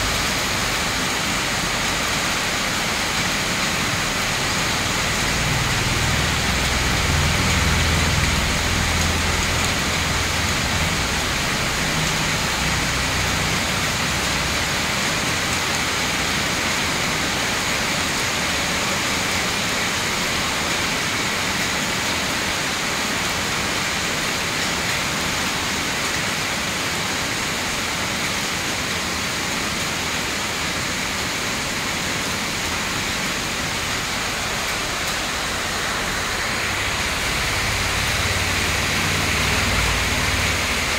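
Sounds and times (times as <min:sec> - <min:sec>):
heavy rain on pavement and leaves: 0:00.0 - 0:40.9.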